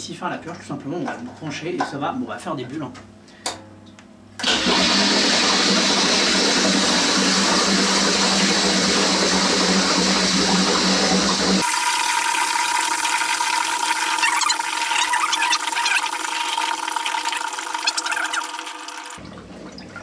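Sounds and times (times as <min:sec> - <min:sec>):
bubbling in bucket: 0:04.6 - 0:20.0.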